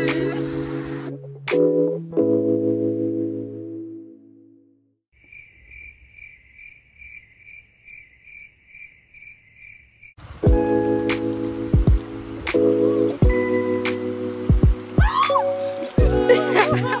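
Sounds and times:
background music: 0.0s - 4.8s, 10.5s - 17.0s
insect chirping in pulses: 5.2s - 14.9s.

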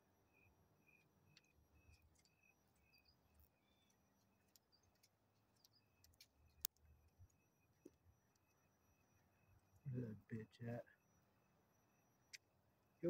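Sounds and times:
faint clicks: 4.4s - 8.5s.

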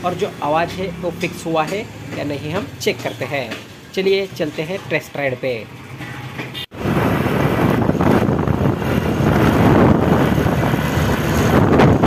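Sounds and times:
wind rush on microphone: 6.7s - 12.0s.

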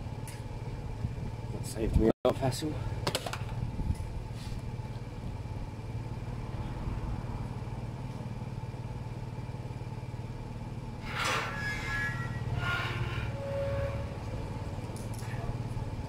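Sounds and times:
scooter engine idling: 2.4s - 11.0s, 14.4s - 16.0s.

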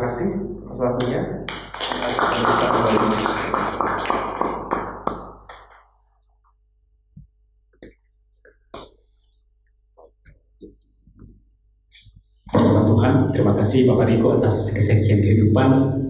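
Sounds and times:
audience clapping: 1.0s - 5.8s.

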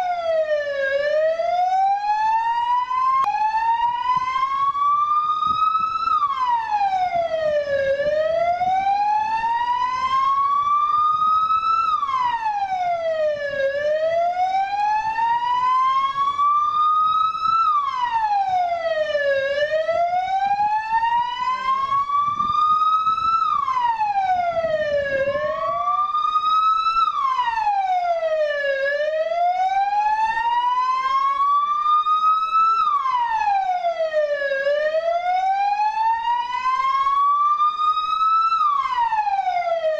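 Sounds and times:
vehicle siren wailing: 0.0s - 39.9s.

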